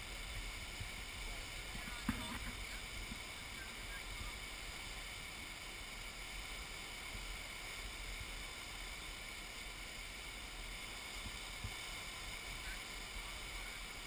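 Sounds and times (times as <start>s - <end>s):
flood water rushing: 0.0s - 14.0s.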